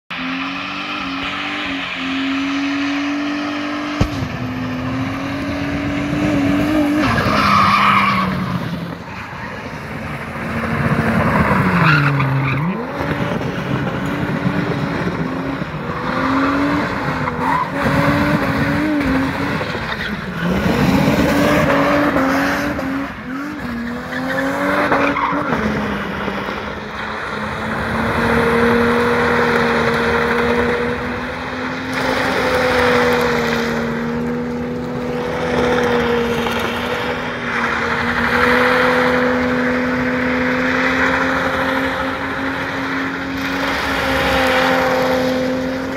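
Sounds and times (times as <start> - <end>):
car engine at high revs: 0.1 - 45.9
tyres spinning and squealing: 6.7 - 10.2, 11.2 - 13.0.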